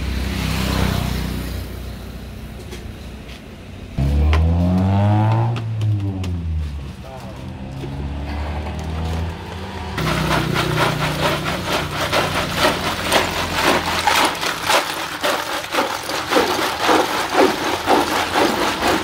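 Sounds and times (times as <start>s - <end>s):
ice cubes clattering in plastic jar: 10.0s - 19.0s.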